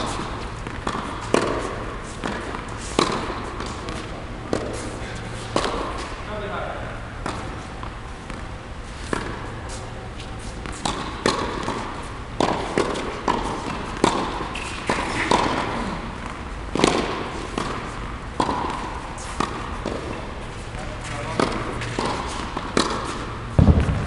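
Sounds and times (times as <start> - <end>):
tennis balls struck with rackets: 0.0 - 4.9, 5.5 - 6.2, 7.2 - 9.6, 10.6 - 20.4, 21.3 - 24.0
tennis balls bouncing on court: 0.0 - 6.2, 7.2 - 9.9, 10.6 - 20.4, 21.0 - 24.0
low hum: 23.5 - 24.0.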